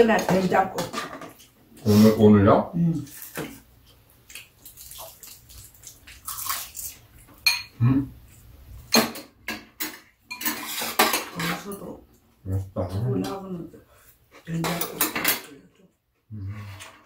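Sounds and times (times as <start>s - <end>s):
utensils clinking on ceramic bowls: 7.4s - 7.8s, 8.9s - 11.9s, 14.6s - 15.8s.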